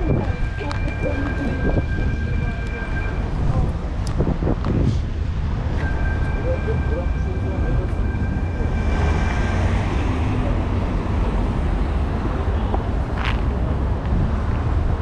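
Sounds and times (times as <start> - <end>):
high steady whine: 0.0 - 11.4
passing vehicles: 0.0 - 15.0.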